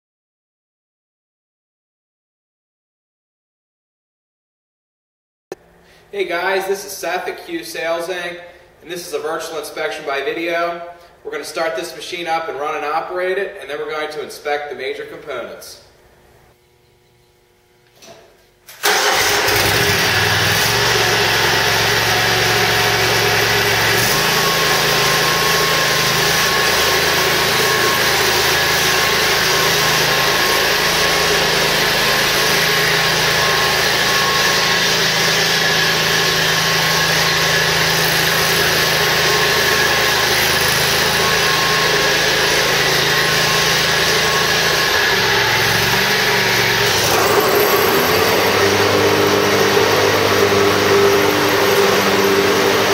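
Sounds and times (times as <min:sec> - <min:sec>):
lawn mower engine running: 0:18.8 - 0:52.9.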